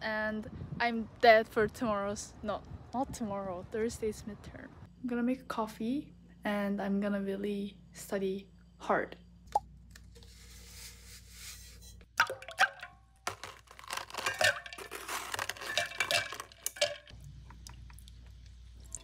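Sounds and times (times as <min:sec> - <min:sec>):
ice cubes clinking into metal cup: 0:12.2 - 0:17.1
ice cubes cracked from plastic tray: 0:13.3 - 0:17.0.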